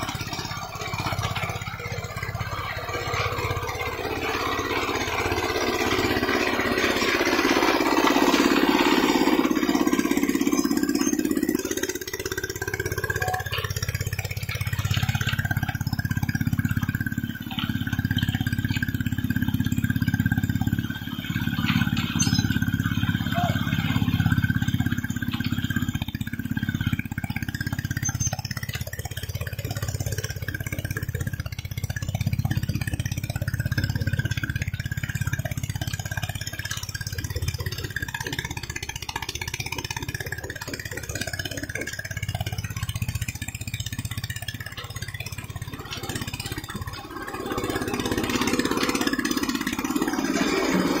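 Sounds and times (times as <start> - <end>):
piling rig engine running: 0.0 - 51.0.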